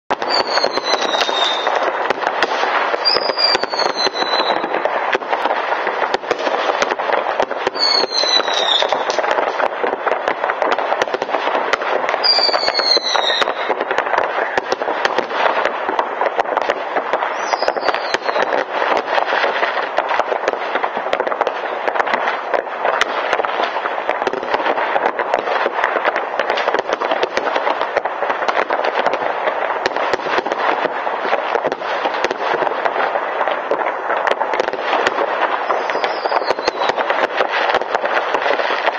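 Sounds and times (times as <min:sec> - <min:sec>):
fireworks bangs and crackles: 0:00.0 - 0:38.9
falling whistles: 0:00.3 - 0:01.7, 0:07.8 - 0:09.0, 0:12.2 - 0:13.7, 0:17.4 - 0:18.5, 0:35.8 - 0:36.9.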